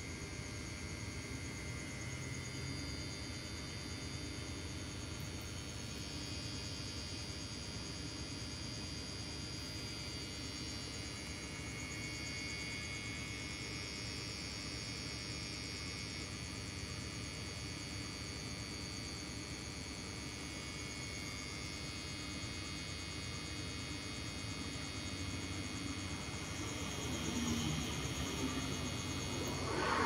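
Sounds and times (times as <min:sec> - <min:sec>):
insects trilling: 0:00.0 - 0:30.0
low rumble: 0:29.0 - 0:30.0.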